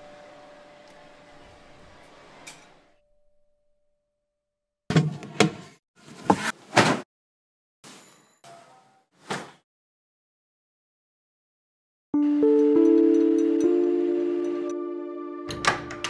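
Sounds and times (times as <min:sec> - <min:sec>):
doorbell ringing: 0:12.2 - 0:16.0.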